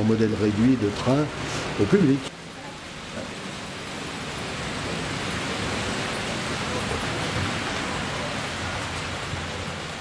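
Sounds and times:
model trains rolling on track: 4.4s - 10.0s.

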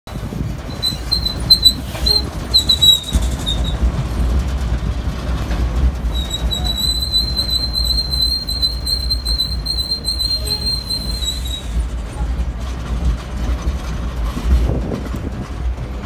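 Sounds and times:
road train rumble: 0.0s - 16.0s
high squeal: 0.7s - 3.8s, 6.1s - 11.9s.

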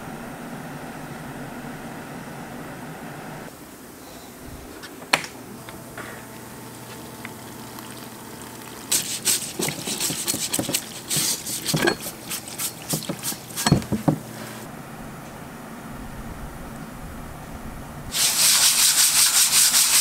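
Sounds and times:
pump humming: 0.0s - 3.5s, 5.5s - 19.6s
fluid splashing from nozzle: 7.5s - 13.7s.

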